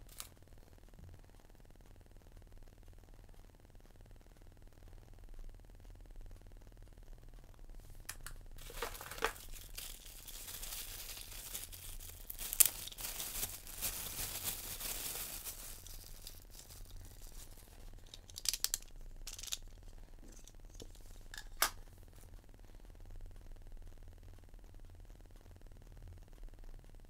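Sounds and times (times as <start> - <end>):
plastic bag crinkling: 8.2 - 19.7.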